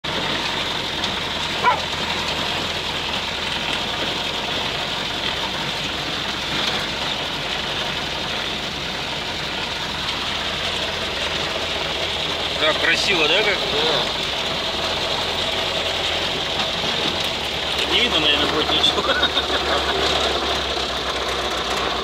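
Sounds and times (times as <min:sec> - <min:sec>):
car engine droning: 0:00.0 - 0:22.0.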